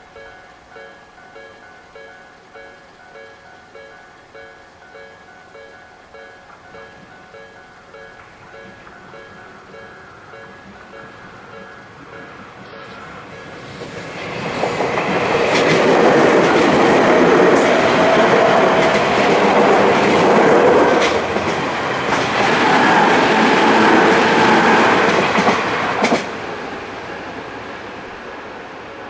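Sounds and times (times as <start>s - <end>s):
train wheels clattering over rails: 8.2s - 26.6s.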